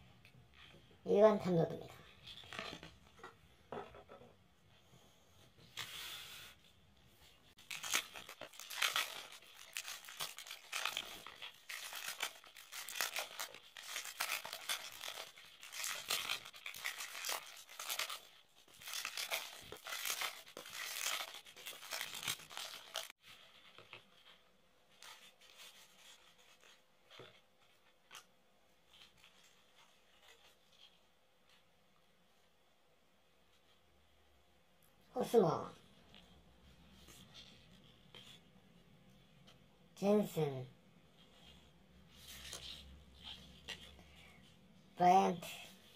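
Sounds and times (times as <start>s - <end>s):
wrappers tearing and crinkling: 7.6s - 23.1s
cards rustling and clicking: 7.6s - 24.4s.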